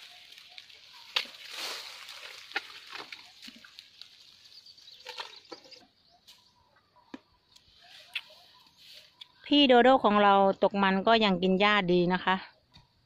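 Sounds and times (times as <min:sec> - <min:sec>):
dry grass rustling and crackling: 0:00.0 - 0:06.5, 0:07.6 - 0:09.6.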